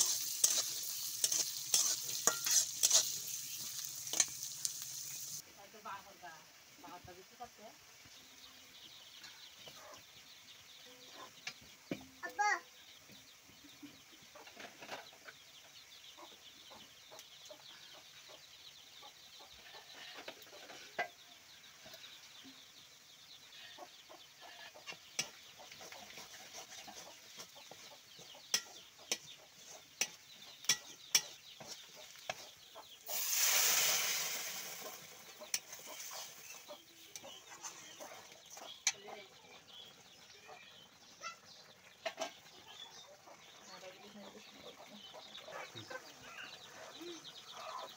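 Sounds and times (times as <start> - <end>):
liquid hissing in hot pot: 0.0 - 5.4, 33.0 - 36.7
metal spatula scraping a pot: 0.0 - 5.4, 24.4 - 27.8, 28.5 - 32.4, 33.1 - 39.0
onions frying with faint sizzle: 0.0 - 45.0.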